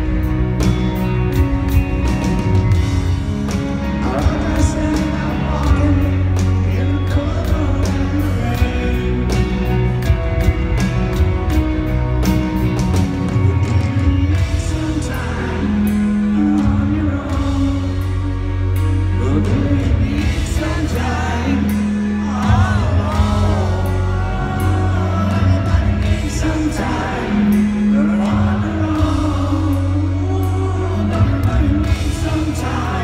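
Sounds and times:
bass notes: 0.0 - 33.0
drums and cymbals: 0.0 - 33.0
grand piano: 0.0 - 33.0
man singing: 3.5 - 10.2, 13.4 - 33.0.

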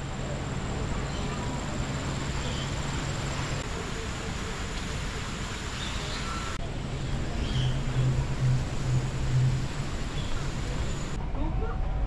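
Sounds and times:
steady rushing hiss: 0.0 - 11.2
low hum: 6.6 - 12.0.

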